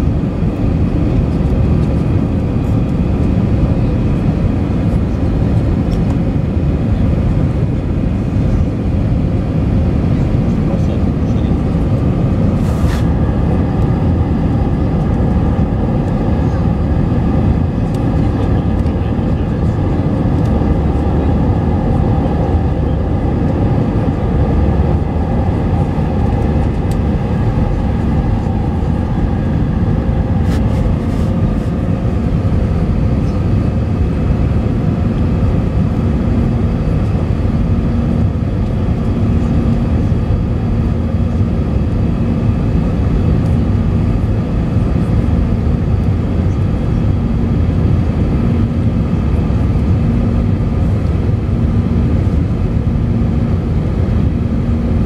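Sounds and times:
jet engines roaring in cabin: 0.0s - 55.0s
rushing airflow: 10.6s - 42.7s.

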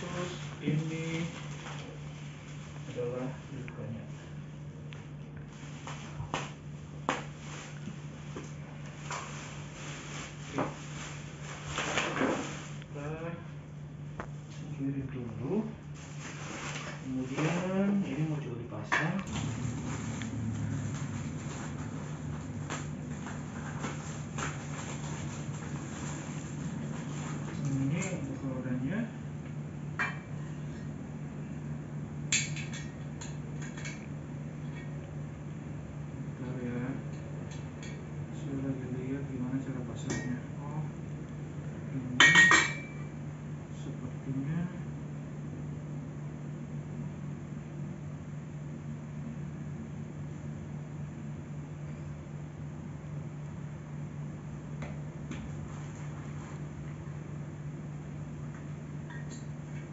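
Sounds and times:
steady low hum: 0.0s - 59.9s
plastic wrapping crinkling: 7.2s - 12.8s, 16.0s - 18.0s, 19.3s - 28.2s.

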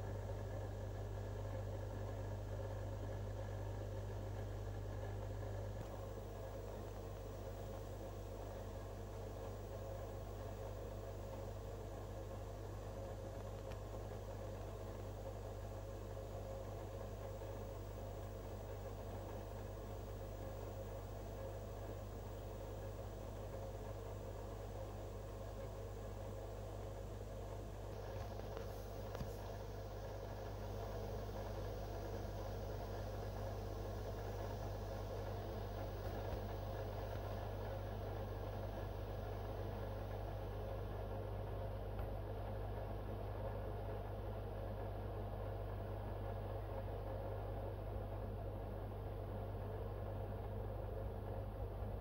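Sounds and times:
aquarium filter pump humming: 0.0s - 52.0s
small tick: 13.4s - 13.8s.

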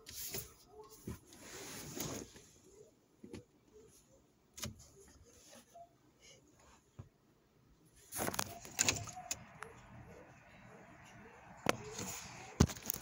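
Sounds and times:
phone handling rustle: 11.7s - 13.0s.

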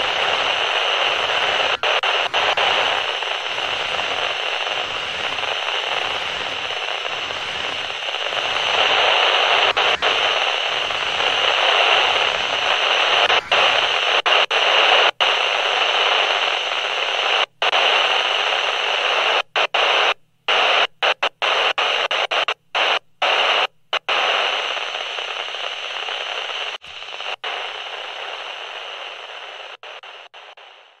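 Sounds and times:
tv static hiss: 0.0s - 31.0s.

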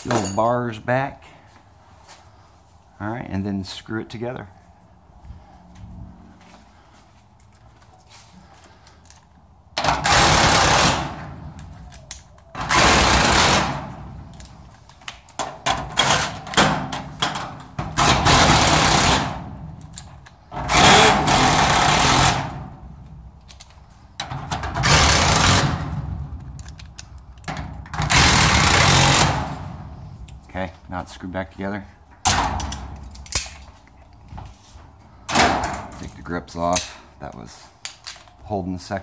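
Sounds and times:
handling noise: 0.0s - 0.7s.

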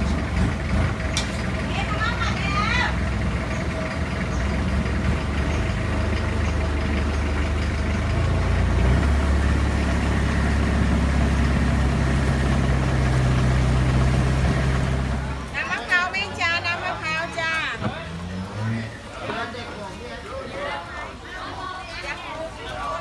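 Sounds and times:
boat engine droning: 0.0s - 20.2s.

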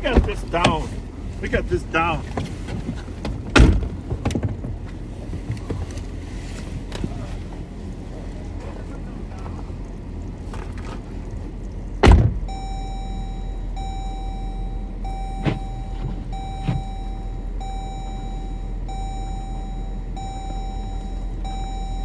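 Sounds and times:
car door thunking open: 0.0s - 0.8s, 2.3s - 4.8s, 12.0s - 12.5s, 15.2s - 17.2s
engine idling: 0.0s - 22.0s
door warning chime beeping: 12.5s - 22.0s.

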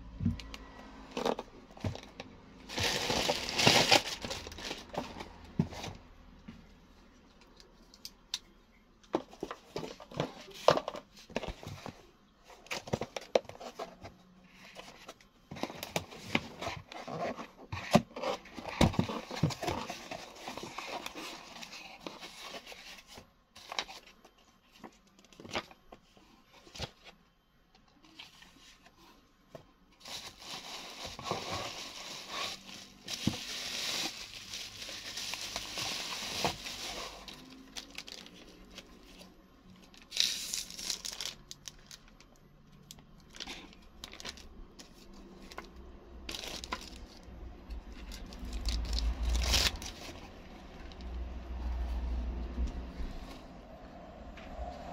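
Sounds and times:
cardboard scraping and rustling: 1.1s - 6.1s, 9.2s - 27.2s, 28.1s - 39.4s
bubble wrap crinkling: 2.6s - 5.2s, 30.0s - 42.4s, 46.3s - 47.3s, 47.9s - 51.0s.

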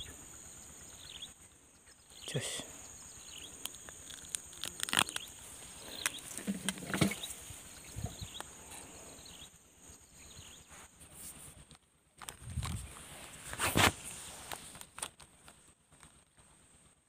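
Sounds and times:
high insect buzz: 0.0s - 11.0s
rustling in dry grass: 3.7s - 9.1s, 9.9s - 16.9s.

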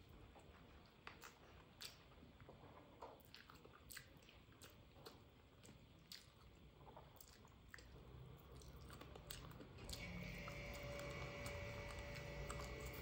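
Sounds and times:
fingers squishing food: 0.2s - 13.0s
person eating: 0.2s - 13.0s.

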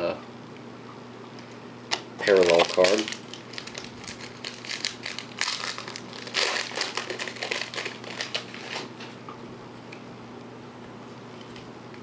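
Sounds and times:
foil wrapper crinkling: 2.2s - 9.0s.

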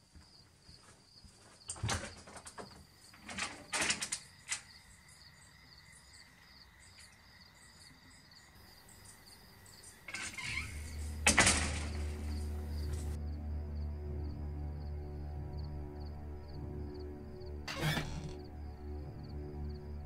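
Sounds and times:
crickets chirping: 0.0s - 20.0s
door latch clicks and knocks: 17.7s - 18.4s.

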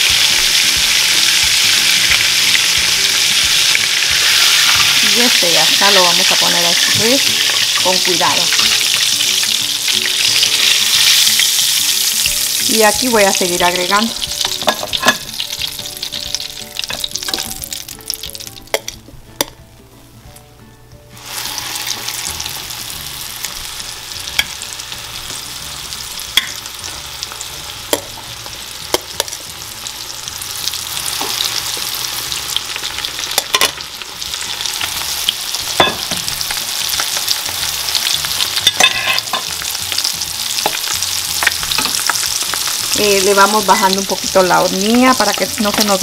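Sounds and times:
fish frying in hot oil: 0.0s - 18.6s, 28.5s - 46.0s
utensils clicking on pan: 13.6s - 17.8s, 28.9s - 29.4s, 31.1s - 33.8s, 34.4s - 39.8s, 40.6s - 43.0s.

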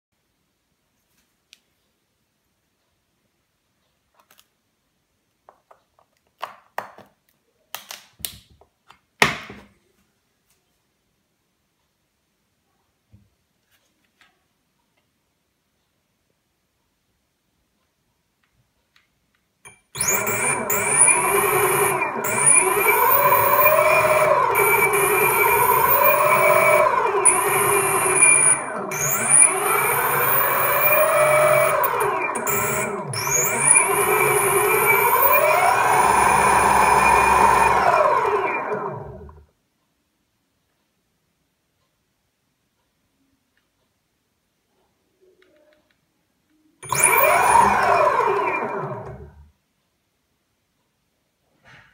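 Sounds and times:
plastic plugs clicking and knocking: 5.4s - 9.6s
electric motor whine: 20.0s - 39.4s, 46.8s - 49.4s.

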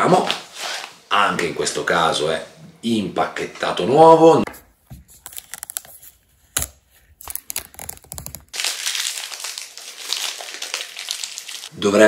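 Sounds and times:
plastic wrap crinkling rustle: 5.0s - 11.8s
plastic shrink-wrap crackling: 7.1s - 11.8s.

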